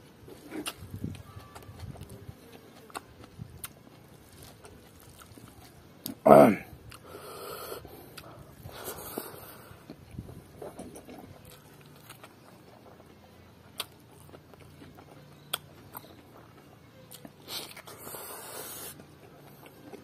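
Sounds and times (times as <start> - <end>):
person chewing: 0.2 - 6.2, 6.8 - 20.0
breathy hiss: 7.0 - 9.8, 17.9 - 19.0.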